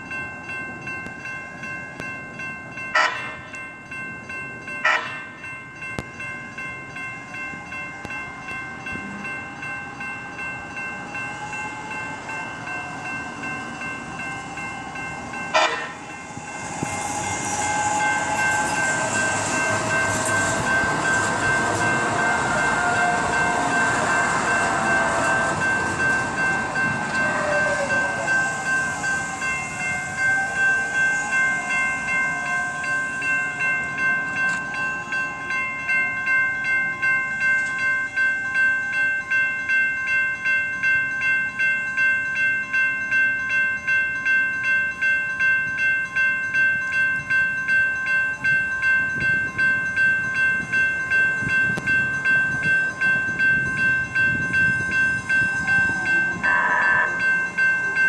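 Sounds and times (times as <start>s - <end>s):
crossing warning bells ringing: 0.0s - 58.0s
train wheel noise: 0.0s - 58.0s
train motor whine: 8.0s - 35.2s, 52.9s - 58.0s.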